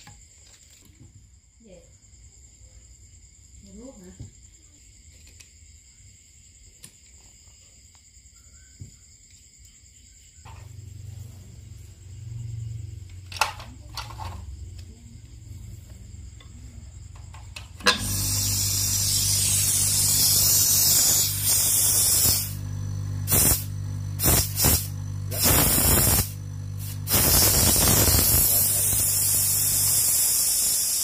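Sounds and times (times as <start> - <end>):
compressor electric hum: 10.4 - 31.0
compressed air hissing: 17.8 - 31.0.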